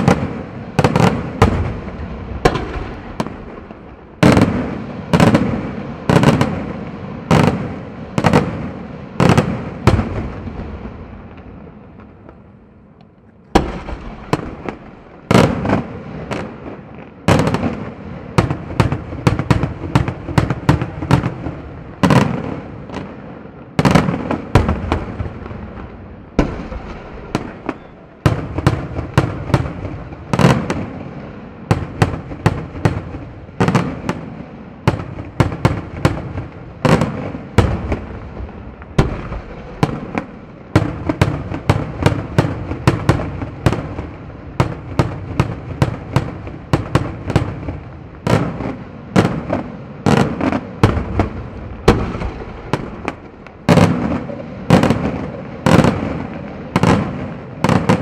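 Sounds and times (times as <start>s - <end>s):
fireworks shells bursting: 2.4s - 5.3s.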